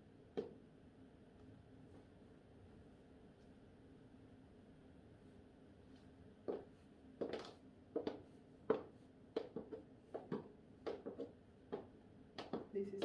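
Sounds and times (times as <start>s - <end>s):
high heel footsteps: 6.4s - 13.0s.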